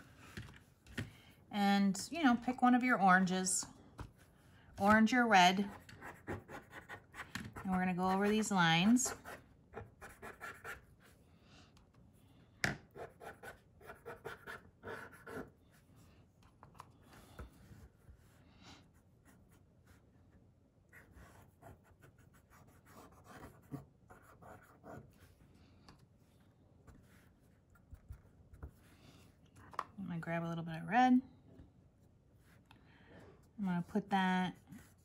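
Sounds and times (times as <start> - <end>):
cotton swab scratching on paper: 5.6 - 10.9.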